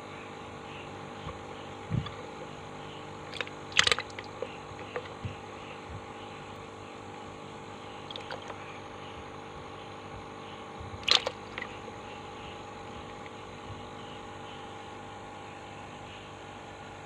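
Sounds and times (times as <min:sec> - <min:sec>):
steady background hum: 0:00.0 - 0:17.0
small splashes and clicks: 0:02.0 - 0:02.5, 0:03.3 - 0:05.2, 0:08.1 - 0:08.6, 0:11.0 - 0:11.8
short sharp splash: 0:03.3 - 0:05.1, 0:11.0 - 0:11.8.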